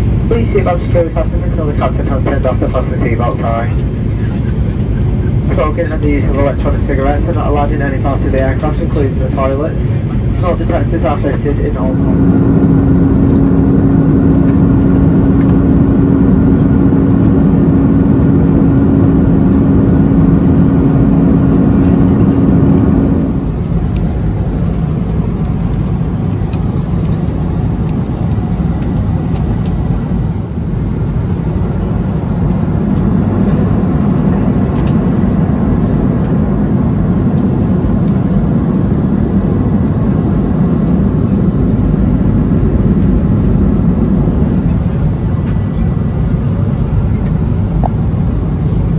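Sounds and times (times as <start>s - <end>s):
airplane cabin airflow rush: 0.0s - 48.9s
droning engine tone: 0.0s - 48.9s.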